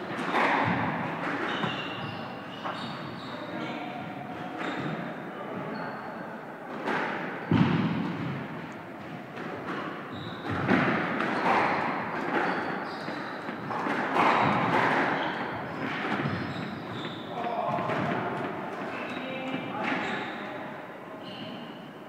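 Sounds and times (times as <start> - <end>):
squash ball hitting rackets and walls: 0.1 - 2.9, 6.7 - 19.0.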